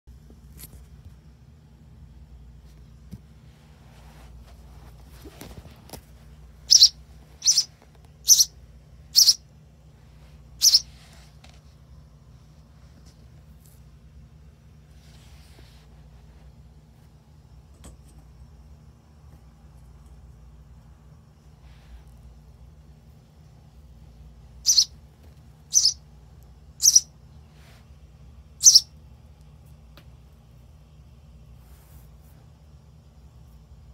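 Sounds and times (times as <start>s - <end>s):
baby sparrow begging chirps: 6.7s - 9.4s, 10.6s - 11.0s, 24.6s - 25.0s, 25.7s - 26.0s, 26.7s - 27.1s, 28.6s - 28.9s.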